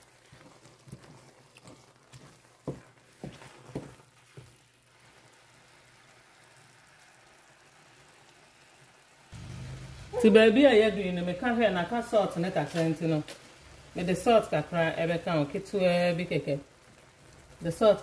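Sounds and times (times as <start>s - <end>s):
wooden spatula scraping pan: 0.0s - 4.6s
faint steady hiss: 0.0s - 18.0s.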